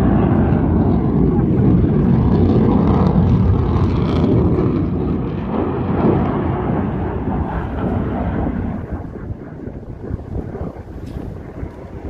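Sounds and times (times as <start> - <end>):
aircraft engine flying overhead: 0.0 - 12.0.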